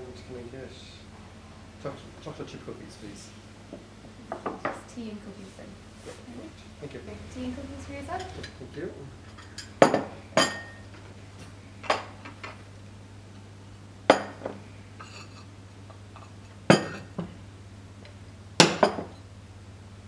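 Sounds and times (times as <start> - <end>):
china clinking on wooden table: 9.3 - 10.8, 14.1 - 15.5, 16.7 - 17.3.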